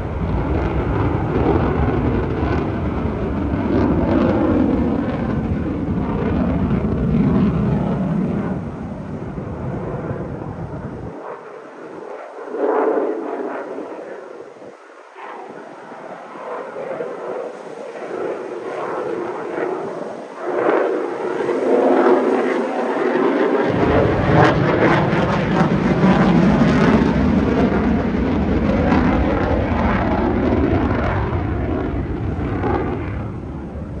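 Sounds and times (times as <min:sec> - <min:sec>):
fighter jet flying past: 0:00.0 - 0:34.0
deep low rumble: 0:23.7 - 0:34.0.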